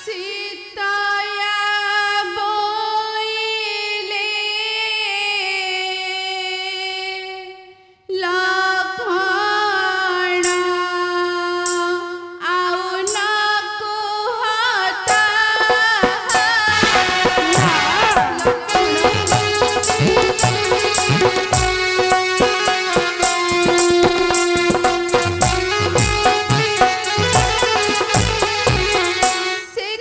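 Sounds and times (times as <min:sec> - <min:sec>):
woman singing with vibrato: 0:12.4 - 0:30.0.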